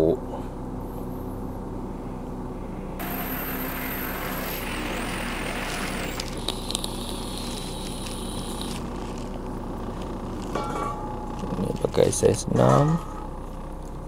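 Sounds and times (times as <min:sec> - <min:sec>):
faint high whine: 0:02.6 - 0:09.1
electric drill boring through metal: 0:03.0 - 0:08.8.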